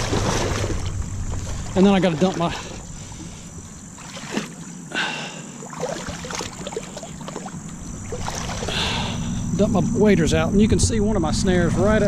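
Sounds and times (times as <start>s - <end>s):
water sloshing from wading: 0.0s - 9.6s.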